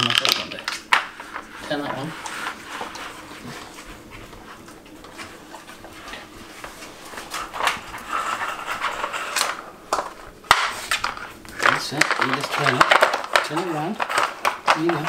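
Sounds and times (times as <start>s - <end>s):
plastic clacks: 7.6s - 15.0s.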